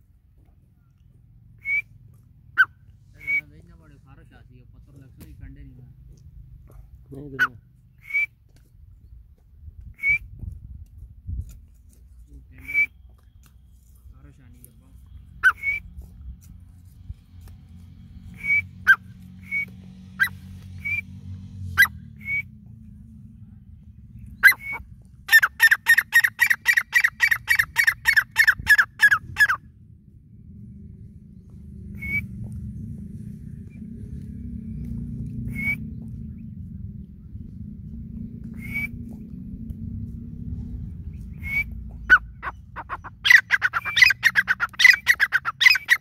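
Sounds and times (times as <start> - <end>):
low rumble: 13.6 - 25.6, 27.6 - 43.3
francolin calling: 15.4 - 15.9, 18.4 - 21.1, 24.4 - 29.6, 35.5 - 35.9, 41.3 - 46.0.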